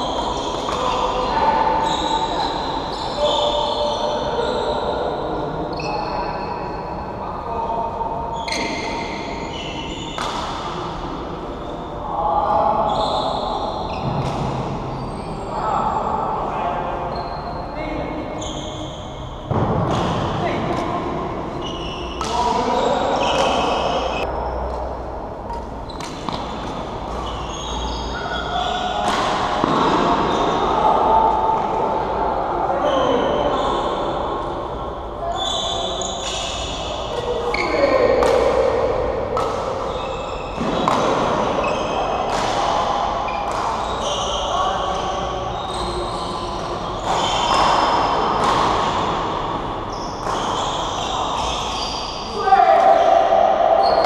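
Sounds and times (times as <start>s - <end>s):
sneakers squeaking on court floor: 0.0s - 5.0s, 8.4s - 10.7s, 12.9s - 15.4s, 17.1s - 17.7s, 18.4s - 30.8s, 35.3s - 38.4s, 39.1s - 52.3s
murmur of other play: 0.0s - 54.0s
racket hitting shuttlecock: 10.2s - 10.8s, 19.5s - 21.6s, 22.2s - 24.8s, 25.4s - 27.4s, 28.5s - 30.4s, 36.3s - 43.8s, 46.6s - 49.6s.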